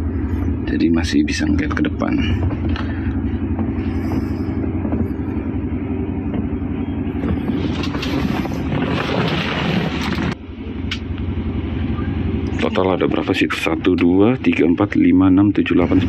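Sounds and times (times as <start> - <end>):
bus engine idling: 0.0 - 16.0
rustling noise: 7.2 - 10.4.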